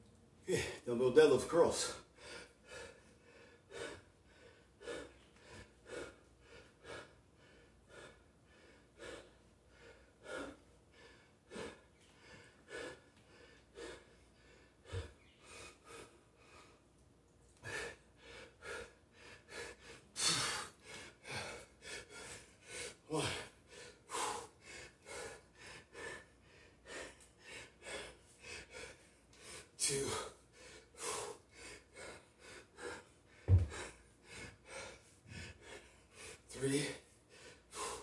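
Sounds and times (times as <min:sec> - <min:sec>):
man breathing hard: 0:01.6 - 0:38.0
soft low thump: 0:33.5 - 0:33.7.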